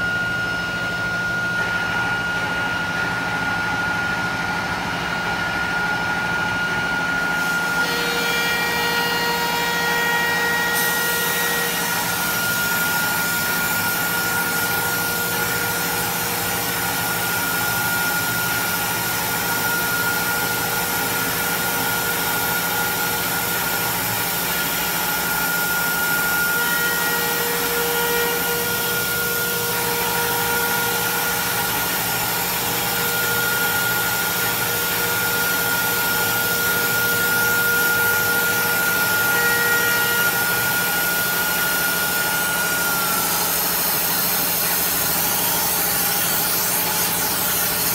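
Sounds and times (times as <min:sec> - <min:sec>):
router spindle whine: 0:00.0 - 0:47.9
router cutting wood: 0:07.4 - 0:20.0, 0:22.8 - 0:47.9.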